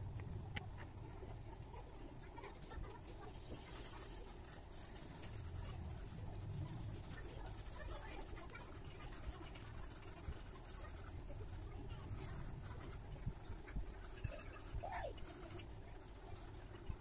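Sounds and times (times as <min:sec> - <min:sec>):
pencil scratching on paper: 0:03.4 - 0:16.9.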